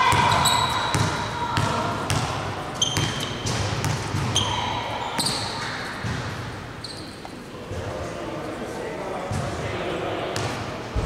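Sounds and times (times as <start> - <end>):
sneaker squeaks: 0.1 - 2.2, 2.8 - 7.4.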